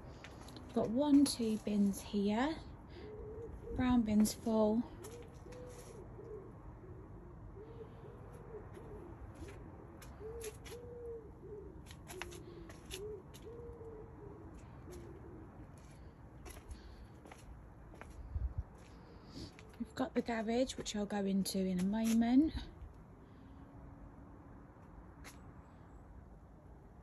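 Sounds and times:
bird cooing: 0:02.4 - 0:17.2.

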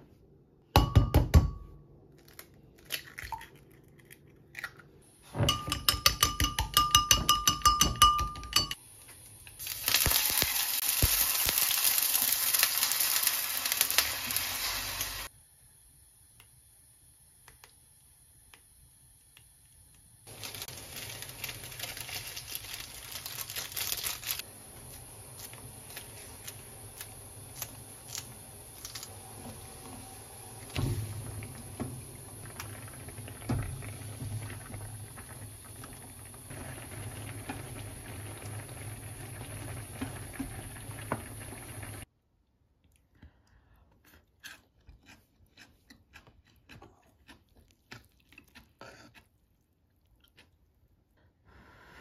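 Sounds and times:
utensil clinking against glass cup: 0:05.4 - 0:08.8
egg sizzling in a pan: 0:08.5 - 0:42.1.

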